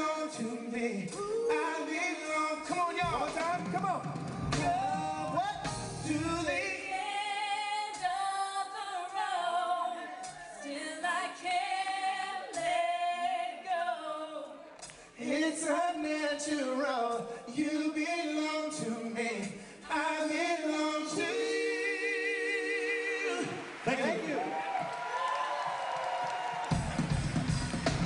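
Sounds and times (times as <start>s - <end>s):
deep bass: 3.1s - 6.6s
vocal group singing in harmony: 4.5s - 23.8s.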